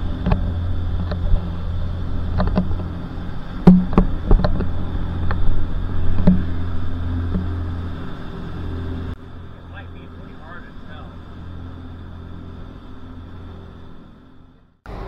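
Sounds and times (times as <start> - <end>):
boat engine droning: 0.0 - 15.0
sharp knocks: 3.6 - 5.4, 6.1 - 6.6.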